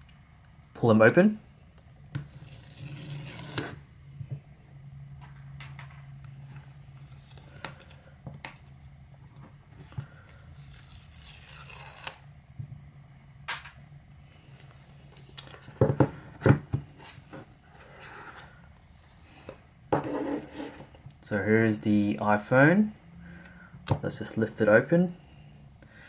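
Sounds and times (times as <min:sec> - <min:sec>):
paper tab ripping: 0:02.2 - 0:03.8, 0:10.7 - 0:12.2.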